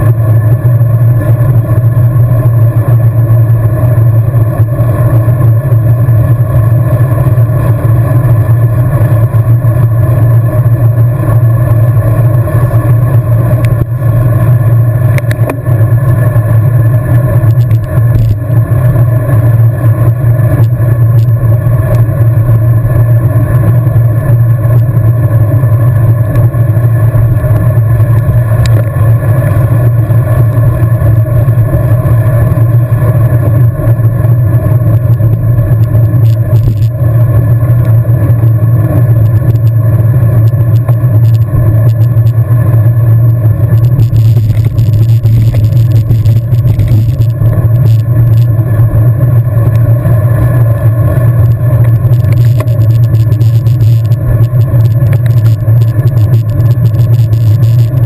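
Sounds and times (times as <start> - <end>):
bicycle tyre noise: 0.0 - 58.0.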